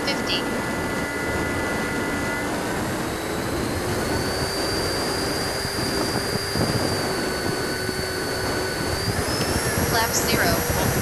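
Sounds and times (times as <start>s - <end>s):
electric ducted fan whining: 0.0s - 11.0s
airflow rushing: 0.5s - 11.0s.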